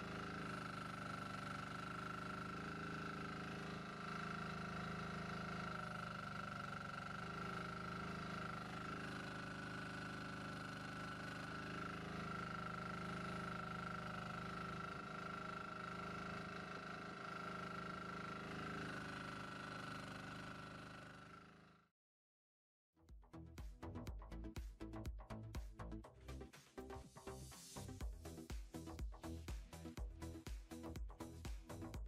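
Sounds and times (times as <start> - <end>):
excavator engine and hydraulics: 0.0 - 21.8.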